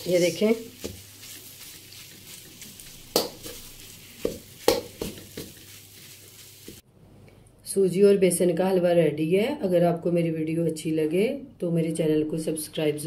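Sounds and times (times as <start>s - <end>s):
spatula scraping a wok: 0.0s - 6.8s.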